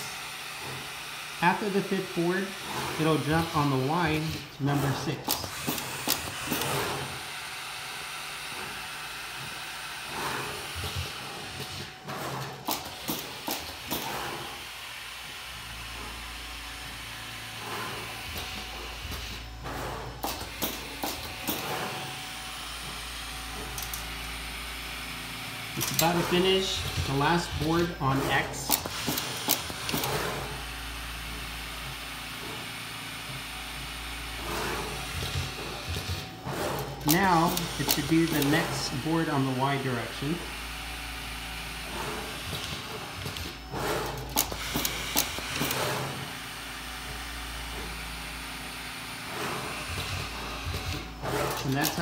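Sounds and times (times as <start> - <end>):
steady machine hiss: 0.0 - 52.0
sharp mechanical clicks: 5.2 - 7.0, 12.4 - 14.3, 25.8 - 26.3, 28.6 - 30.3, 35.2 - 38.8, 42.4 - 46.2, 50.7 - 52.0.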